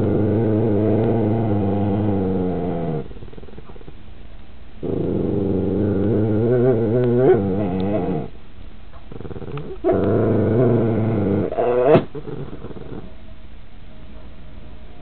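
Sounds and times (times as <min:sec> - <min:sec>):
puppies growling: 0:00.0 - 0:04.0, 0:04.8 - 0:08.4, 0:09.0 - 0:13.1.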